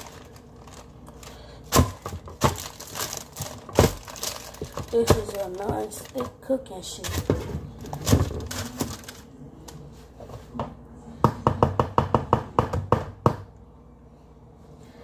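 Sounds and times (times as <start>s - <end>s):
paper rustling and crinkling: 0.0s - 10.0s.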